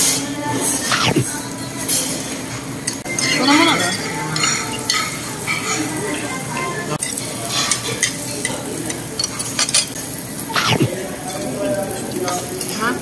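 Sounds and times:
utensils clinking: 0.6s - 10.0s
meat sizzling on grill: 1.4s - 13.0s.

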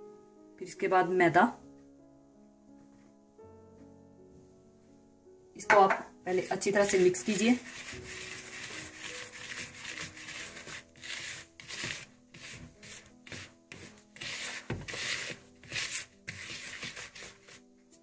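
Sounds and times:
hand scraping flour in plastic bowl: 6.3s - 18.0s.

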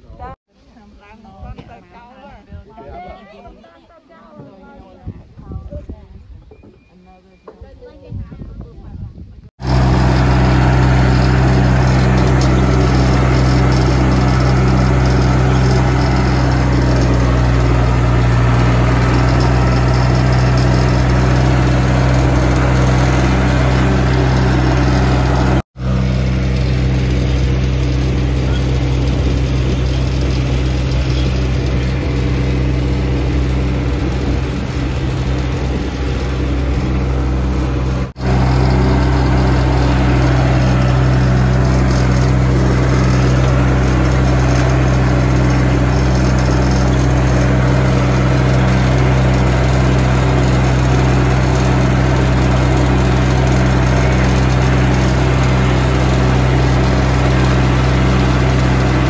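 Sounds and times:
tractor engine running: 9.6s - 59.0s.

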